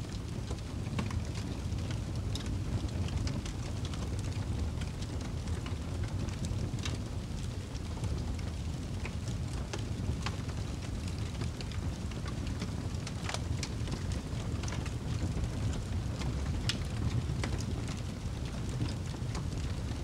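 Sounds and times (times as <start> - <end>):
fire low rumble: 0.0 - 20.0
fire crackles and pops: 0.1 - 20.0.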